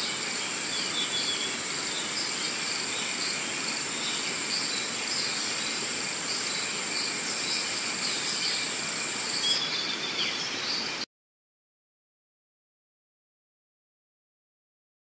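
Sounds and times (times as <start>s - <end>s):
insects buzzing: 0.0s - 11.0s.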